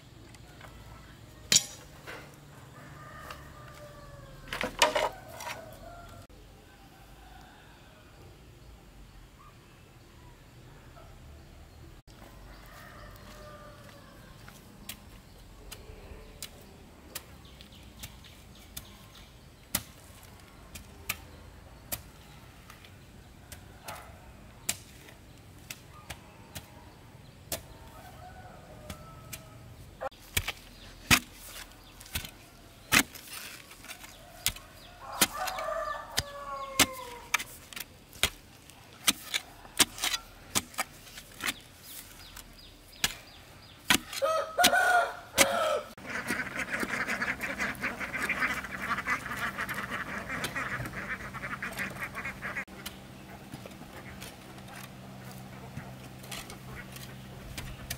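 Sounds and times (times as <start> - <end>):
rooster crowing: 2.7 - 8.2, 12.6 - 14.4, 27.8 - 29.7, 34.9 - 37.3, 44.2 - 46.0
chickens clucking: 44.1 - 57.9.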